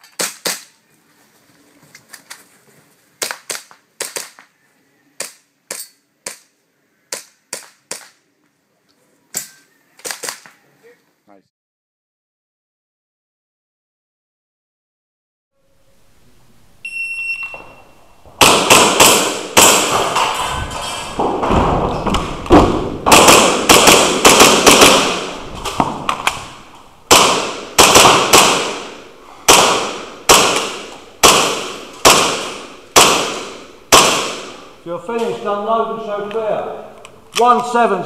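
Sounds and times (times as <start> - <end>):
shot timer beep: 16.8 - 18.1
pellets hitting targets: 18.3 - 35.4
airsoft pistol shots: 18.4 - 20.4, 21.2 - 34.8.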